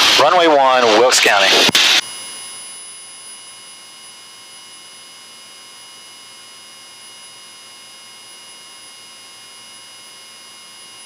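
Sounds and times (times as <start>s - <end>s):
electronic hiss and hum: 0.0s - 2.6s
faint high steady whine: 0.0s - 11.0s.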